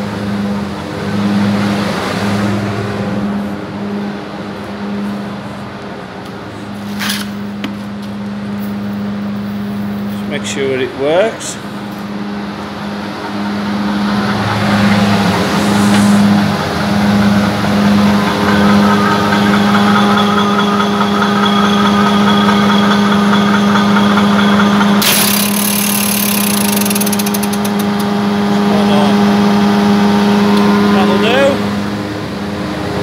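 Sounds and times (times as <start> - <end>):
harvester engine humming: 0.0 - 33.0.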